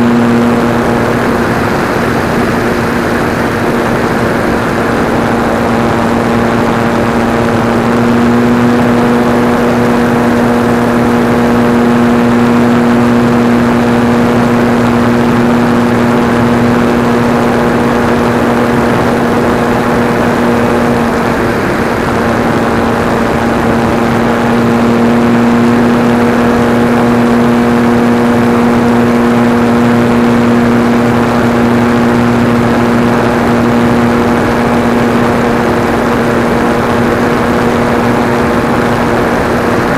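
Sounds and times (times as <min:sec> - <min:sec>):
model airplane motor droning: 0:00.0 - 0:39.9
wind rush: 0:00.0 - 0:39.9.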